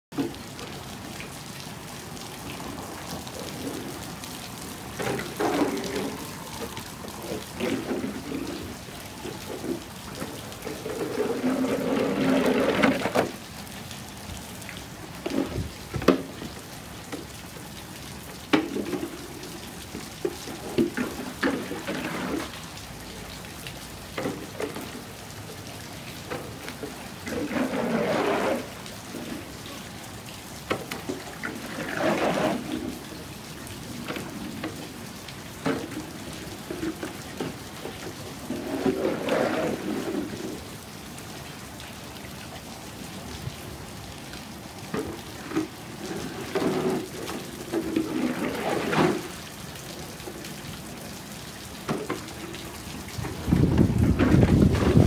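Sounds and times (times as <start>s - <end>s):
rain on concrete: 0.0s - 55.0s
broom swishing water: 2.6s - 13.4s, 15.2s - 16.4s, 18.5s - 22.8s, 26.2s - 29.7s, 30.7s - 33.2s, 33.8s - 40.7s, 44.9s - 49.4s, 51.9s - 55.0s.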